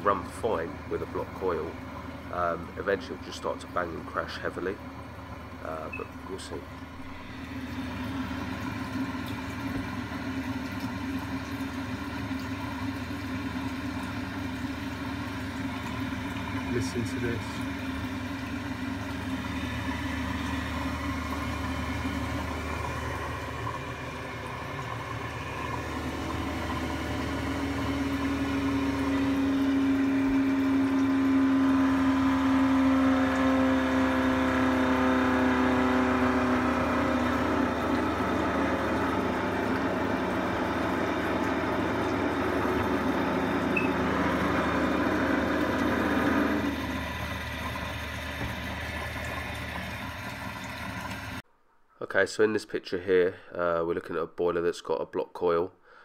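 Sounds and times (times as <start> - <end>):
boiler droning: 0.0 - 51.4
burner and fan humming: 0.0 - 51.4.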